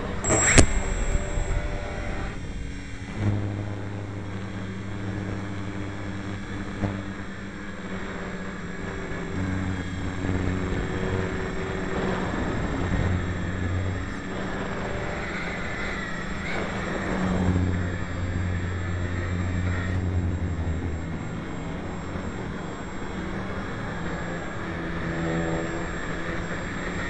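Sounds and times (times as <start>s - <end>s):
wind noise on microphone: 0.0s - 7.2s
model airplane motor droning: 0.0s - 27.0s.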